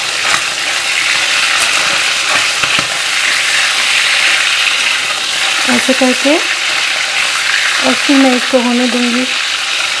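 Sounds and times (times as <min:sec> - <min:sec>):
chicken sizzling in oil: 0:00.0 - 0:10.0
metal spatula scraping and tapping: 0:01.5 - 0:03.0.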